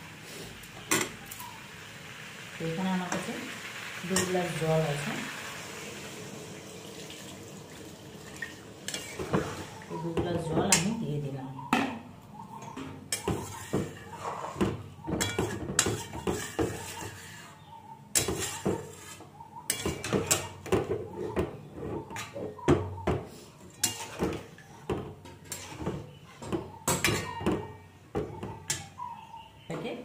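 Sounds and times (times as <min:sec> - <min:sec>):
metal ladle stirring liquid in pot: 0:13.1 - 0:17.6, 0:18.2 - 0:20.5, 0:23.7 - 0:24.7
metal clinks and scrapes on pot: 0:15.2 - 0:17.5, 0:18.2 - 0:20.5, 0:23.7 - 0:24.6, 0:25.4 - 0:27.4.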